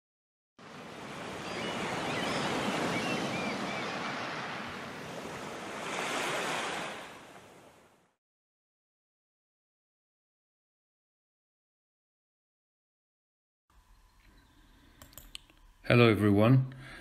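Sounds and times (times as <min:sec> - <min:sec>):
ocean waves washing in: 0:00.6 - 0:08.2
wind: 0:00.6 - 0:08.2, 0:13.7 - 0:17.0.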